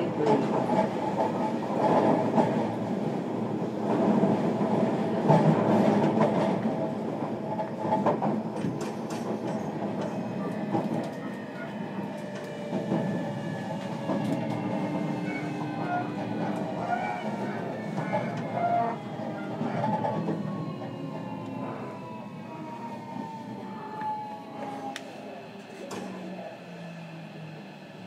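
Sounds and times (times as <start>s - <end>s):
train wheels rumbling on rails: 0.0s - 28.0s.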